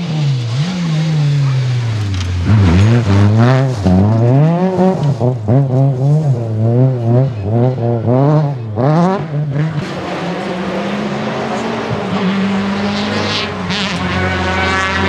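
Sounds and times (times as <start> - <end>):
rally car engine revving: 0.0 - 15.0
loud rushing of passing car: 8.0 - 15.0.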